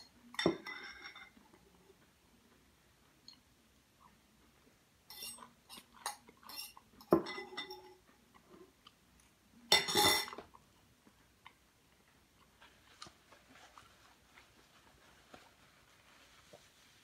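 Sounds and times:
fork scraping a bowl: 0:05.1 - 0:07.8.

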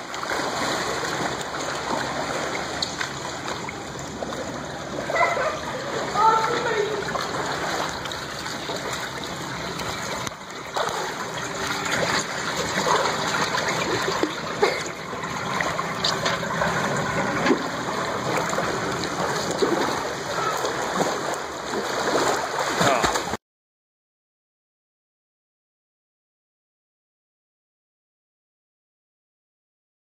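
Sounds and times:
swimmers splashing water: 0:00.0 - 0:23.4.

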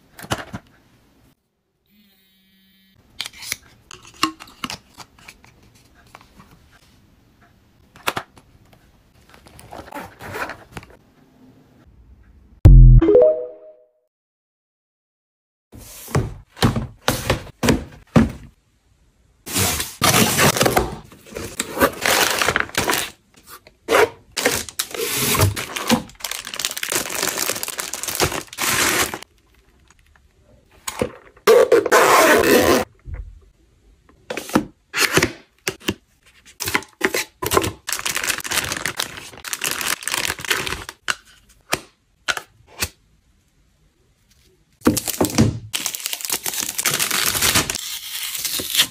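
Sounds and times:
packaging tearing and crinkling: 0:21.4 - 0:23.2, 0:24.4 - 0:29.2, 0:37.5 - 0:41.0, 0:45.0 - 0:48.9.

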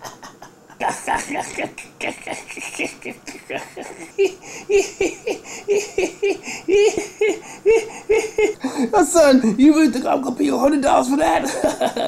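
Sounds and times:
man laughing heartily: 0:00.0 - 0:08.9, 0:11.4 - 0:12.0.

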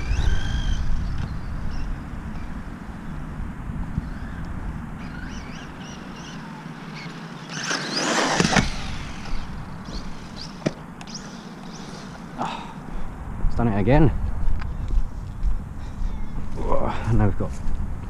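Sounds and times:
rc car motor whining past: 0:00.0 - 0:03.1, 0:03.9 - 0:12.5
wind rumble on microphone: 0:00.0 - 0:06.2, 0:12.9 - 0:18.0.

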